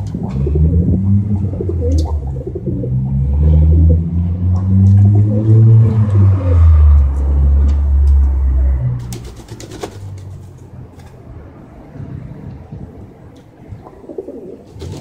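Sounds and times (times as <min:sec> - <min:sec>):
pigeon cooing: 0:00.0 - 0:07.1, 0:13.8 - 0:15.0
wing flaps: 0:09.0 - 0:11.3, 0:14.6 - 0:15.0.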